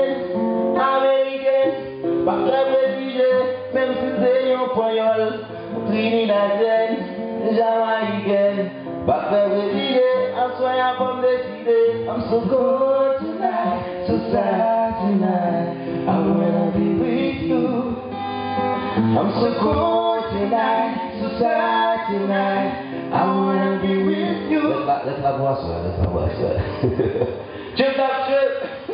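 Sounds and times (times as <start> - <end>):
man singing slow melody: 0.0 - 25.5
acoustic guitar strumming: 0.0 - 28.9.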